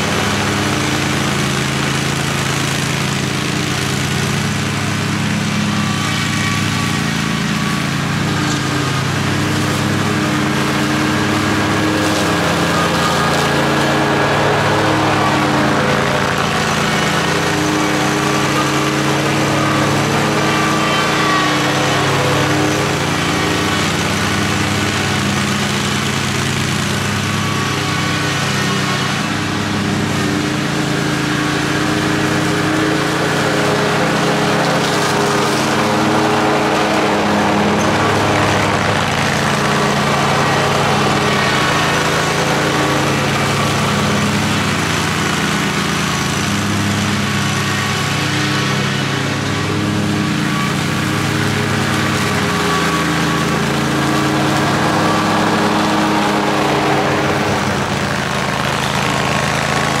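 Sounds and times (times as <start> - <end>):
lawn mower engine droning: 0.0 - 60.0.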